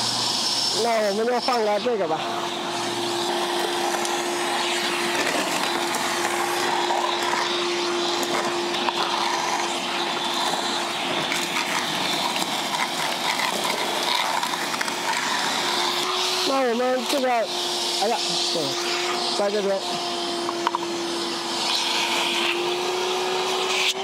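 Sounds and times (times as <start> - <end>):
air rushing through hose: 0.0 - 16.6, 17.5 - 24.0
vacuum motor hum: 0.0 - 24.0.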